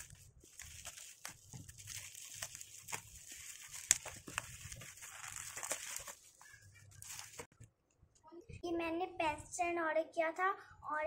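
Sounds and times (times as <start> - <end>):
bubble wrap crinkling: 0.0 - 7.5.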